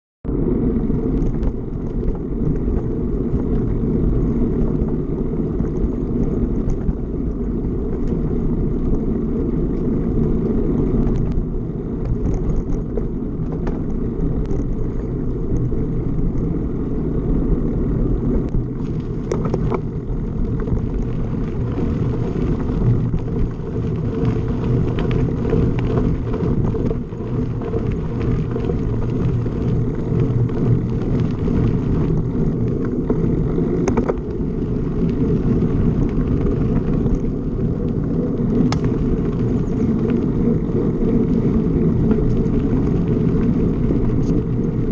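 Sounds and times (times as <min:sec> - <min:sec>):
wind and motion rumble: 0:00.2 - 0:44.9
faint ticks: 0:09.7 - 0:16.5, 0:18.2 - 0:44.8.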